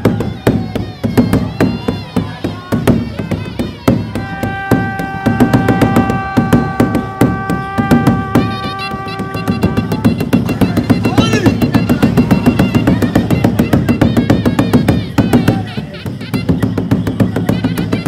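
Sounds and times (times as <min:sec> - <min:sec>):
fast drumbeats: 0:00.0 - 0:18.0
held wind instrument note: 0:00.0 - 0:18.0.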